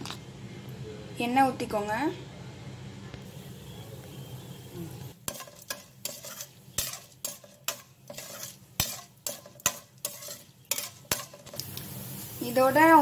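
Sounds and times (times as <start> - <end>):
seeds frying in oil: 3.2 - 13.0
spatula stirring in pan: 5.2 - 12.2.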